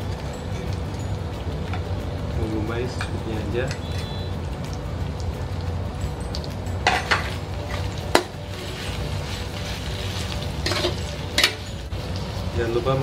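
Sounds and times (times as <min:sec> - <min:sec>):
metal spatula scraping wok: 0:06.9 - 0:11.9
spatula clanking on pan: 0:10.6 - 0:11.7.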